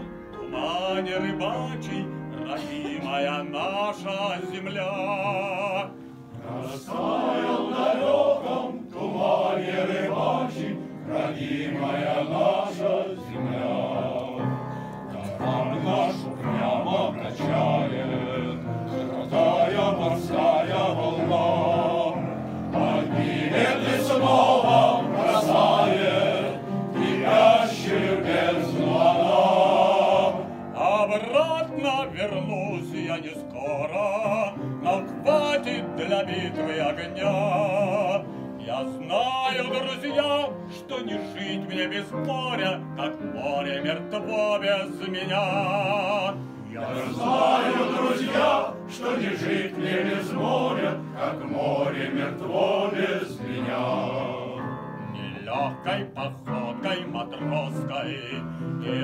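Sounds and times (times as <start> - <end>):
man singing with vibrato: 0.0 - 6.0, 30.8 - 47.3, 55.0 - 59.0
men's choir singing: 0.0 - 59.0.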